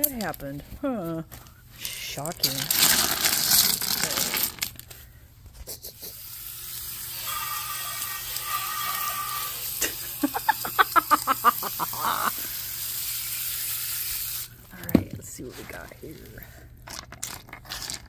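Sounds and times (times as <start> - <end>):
water spraying onto rocks: 6.8 - 14.6.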